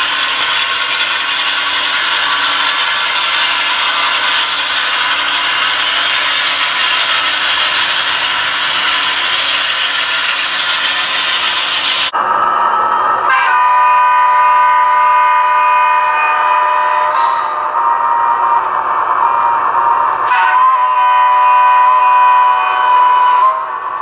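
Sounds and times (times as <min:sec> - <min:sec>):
model train rolling on track: 0:00.0 - 0:24.0
model locomotive horn: 0:13.2 - 0:17.8, 0:20.2 - 0:23.8.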